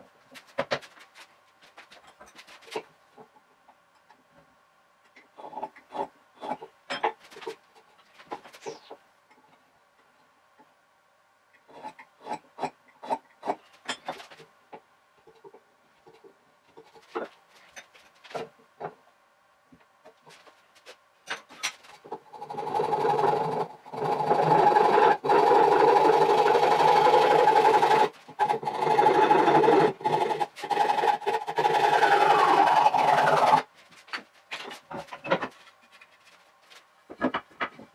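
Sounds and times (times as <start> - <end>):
tools tapping and clicking: 11.5 - 19.0, 19.8 - 22.2, 37.1 - 37.9
hand saw cutting wood: 22.4 - 33.7.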